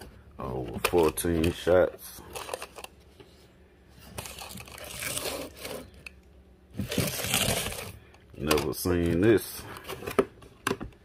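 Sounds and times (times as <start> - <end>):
packaging rustling and crinkling: 4.0 - 6.0, 6.8 - 10.2.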